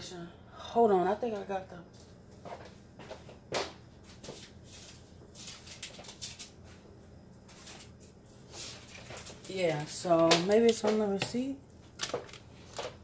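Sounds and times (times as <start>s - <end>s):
faint clicks and rustles: 7.4s - 13.0s.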